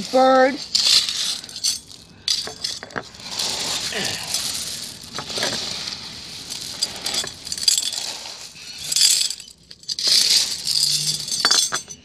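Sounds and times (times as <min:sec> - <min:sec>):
gravel scraped by hand: 0:03.1 - 0:09.0.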